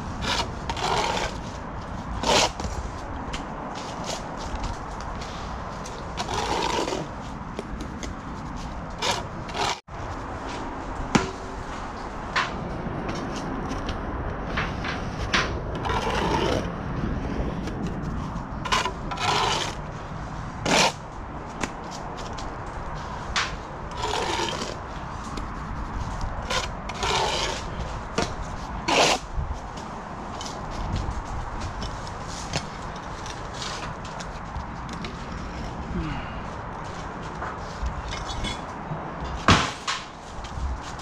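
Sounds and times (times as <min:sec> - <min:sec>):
trowel scraping mortar on bricks: 0:00.1 - 0:01.6, 0:02.2 - 0:02.8, 0:05.2 - 0:07.2, 0:08.9 - 0:09.8, 0:15.8 - 0:16.7, 0:18.6 - 0:19.9, 0:20.6 - 0:21.0, 0:23.9 - 0:25.5, 0:26.4 - 0:29.3.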